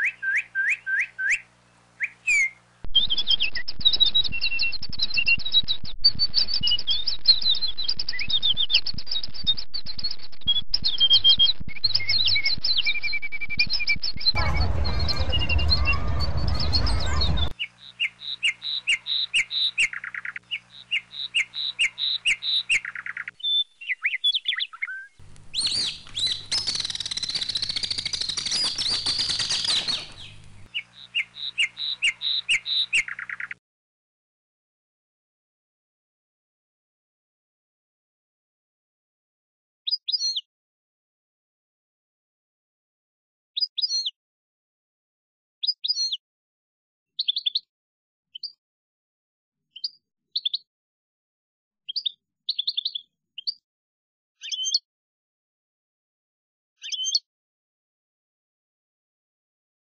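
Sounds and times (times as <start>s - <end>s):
rushing noise: 14.4s - 17.5s
small birds chirping: 17.6s - 33.6s, 39.9s - 40.4s, 45.6s - 46.2s, 47.2s - 47.7s, 49.8s - 50.6s, 51.9s - 53.6s, 54.4s - 54.8s, 56.8s - 57.2s.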